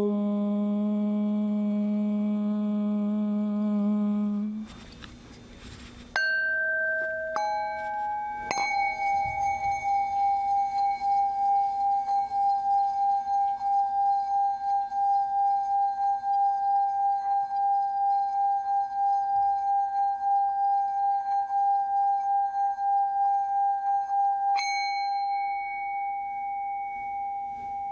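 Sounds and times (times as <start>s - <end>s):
woman humming om chant: 0.0s - 4.8s
mallet rubbing singing bowl rim: 4.4s - 27.9s
singing bowl struck with mallet: 6.2s - 27.9s.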